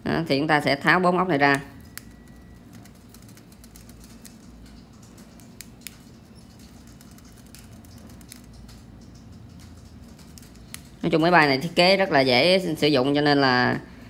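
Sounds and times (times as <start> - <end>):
screwdriver scratching and clicking: 1.8 - 11.0
sharp ticks: 1.9 - 11.0.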